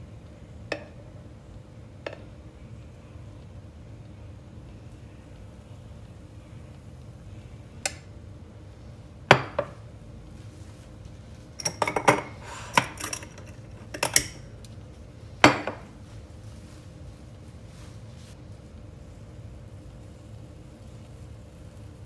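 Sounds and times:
kitchenware clinking on countertop: 11.6s - 14.5s, 15.4s - 15.9s.

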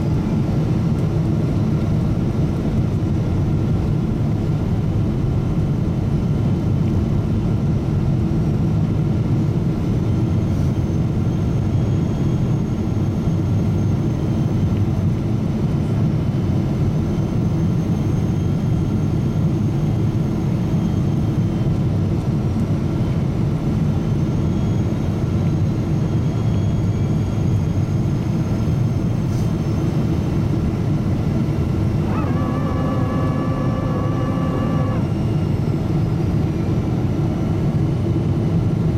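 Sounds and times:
airliner cabin rumble: 0.0s - 38.9s
multi-tone whine: 9.8s - 38.9s.

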